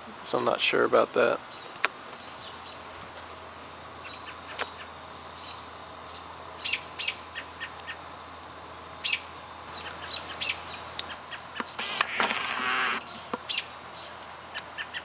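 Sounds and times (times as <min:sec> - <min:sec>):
window air conditioner humming: 0:00.0 - 0:15.0
birds chirping: 0:01.4 - 0:02.9, 0:03.9 - 0:08.2, 0:09.0 - 0:12.1, 0:12.7 - 0:15.0.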